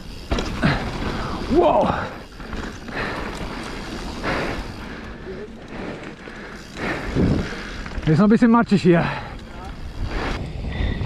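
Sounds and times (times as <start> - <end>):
bike tyres on gravel: 0.0 - 11.0
wind on microphone: 9.9 - 11.0.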